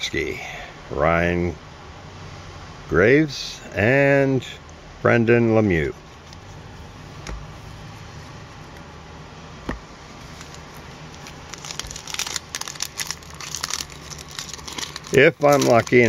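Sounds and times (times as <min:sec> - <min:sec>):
low room hum: 0:00.0 - 0:16.0
foil wrapper crinkling: 0:10.2 - 0:16.0.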